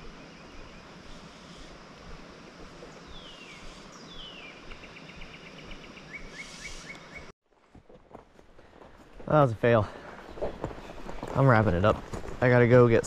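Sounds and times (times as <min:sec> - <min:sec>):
steady outdoor hiss: 0:00.0 - 0:07.3, 0:08.1 - 0:13.0
songbird singing: 0:00.0 - 0:07.4.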